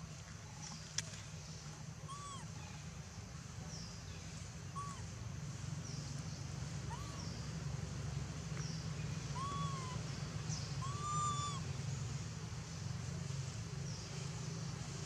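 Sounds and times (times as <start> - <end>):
steady low hum: 0.0 - 15.0
animal calls rising and falling: 9.4 - 10.0, 10.8 - 11.6.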